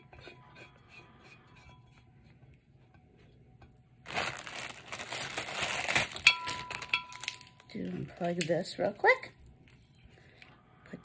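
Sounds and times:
plastic wrapping crinkling: 0:04.0 - 0:08.5.

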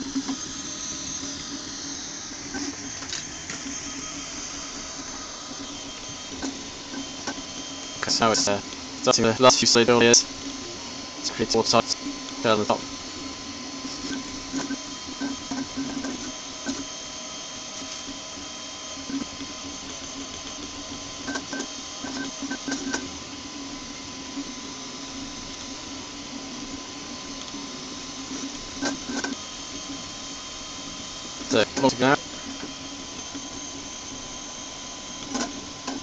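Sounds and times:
steady hum: 0:00.0 - 0:36.0
stepper motors whining and buzzing: 0:00.0 - 0:36.0.

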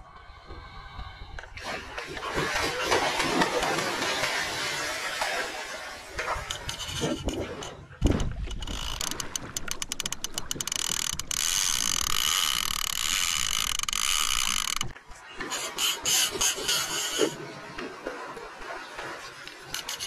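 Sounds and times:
heavy splash of fish: 0:01.6 - 0:06.2
fishing reel drag clicking: 0:08.6 - 0:14.9.

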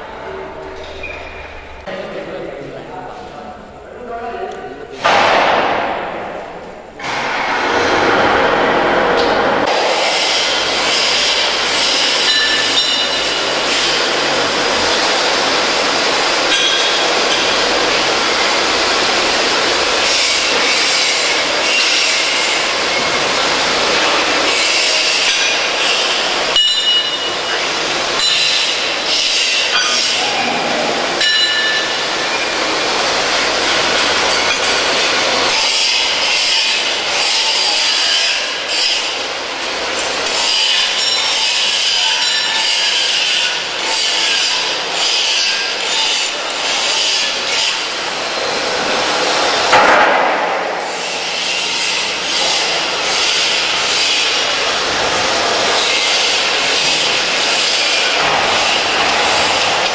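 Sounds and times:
hand grinder cutting steel: 0:09.7 - 0:15.0, 0:20.0 - 0:30.3, 0:33.4 - 0:39.2, 0:40.0 - 0:48.0.

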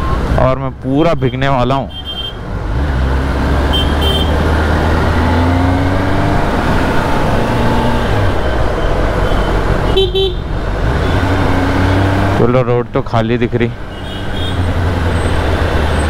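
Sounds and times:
brief beep: 0:00.0 - 0:00.2
road and wind noise: 0:00.0 - 0:16.0
motorcycle engine accelerating: 0:02.6 - 0:12.5.

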